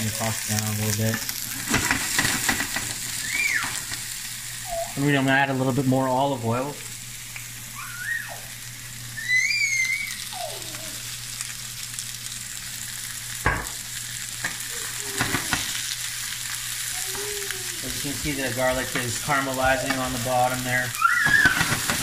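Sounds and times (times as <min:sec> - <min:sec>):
shrimp sizzling in oil: 0:00.0 - 0:22.0
wooden spoon knocking pan: 0:21.2 - 0:22.0.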